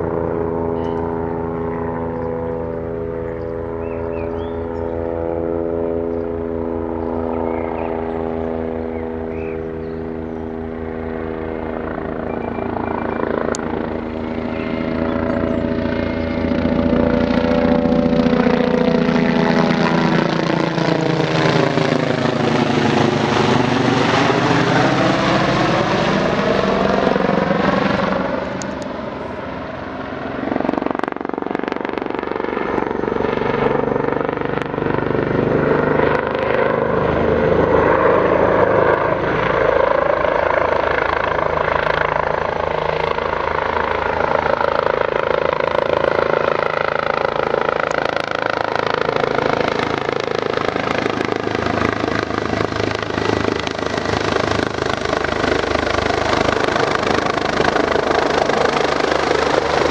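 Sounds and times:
helicopter flying overhead: 0.0 - 59.9.

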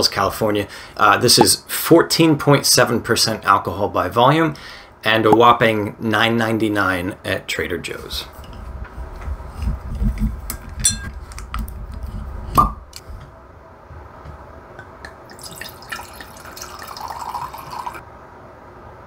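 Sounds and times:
wine pouring into glass: 15.2 - 18.0.

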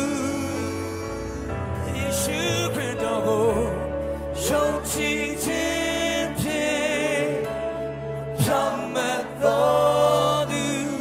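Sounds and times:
band playing worship song: 0.0 - 11.0.

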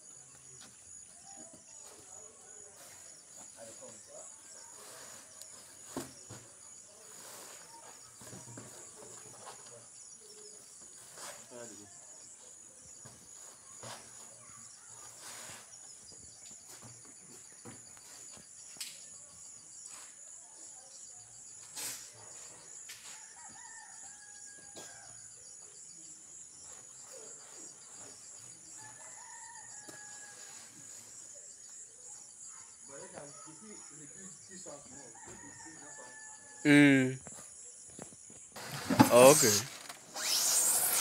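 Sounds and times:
insects chirring: 0.0 - 41.0
rooster crowing: 35.2 - 36.5.

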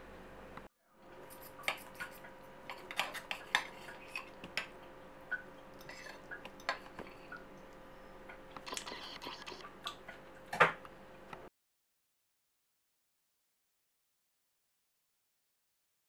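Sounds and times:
faint steady hum: 0.0 - 11.5.

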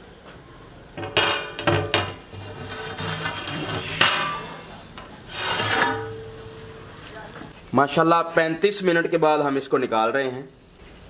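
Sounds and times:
metal lid clanking: 1.0 - 7.0
metal lid scraping: 1.0 - 7.0.

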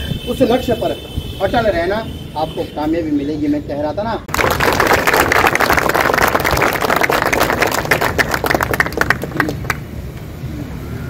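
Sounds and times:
crowd applauding: 4.3 - 9.9.

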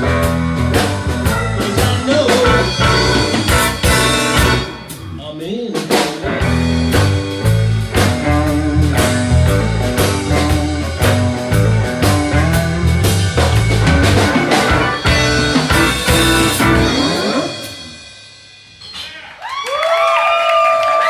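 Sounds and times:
electric guitar: 0.0 - 5.1, 6.2 - 18.2
keyboard: 0.0 - 5.1
electric bass: 0.0 - 18.3
drum kit beat: 0.0 - 19.2.

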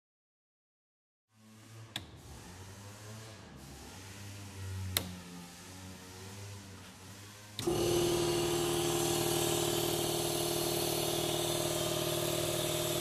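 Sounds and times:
air compressor humming: 7.6 - 13.0.

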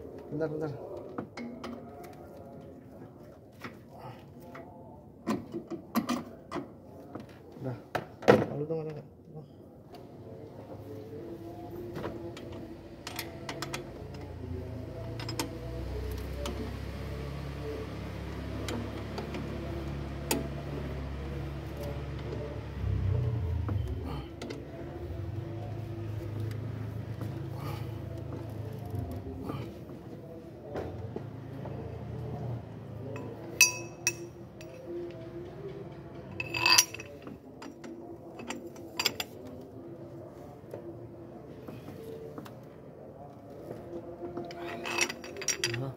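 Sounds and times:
metal hand tools clinking: 33.2 - 34.8, 36.4 - 37.2, 44.7 - 45.8.

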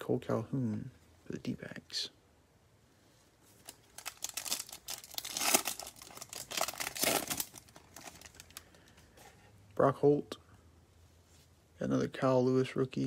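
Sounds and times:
foil wrapper crinkling and tearing: 3.6 - 8.8.

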